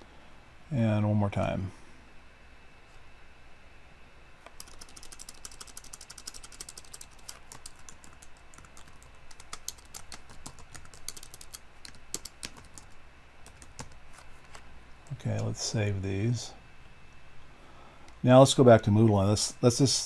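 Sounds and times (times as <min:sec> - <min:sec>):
typing on computer keyboard: 0:04.5 - 0:14.0.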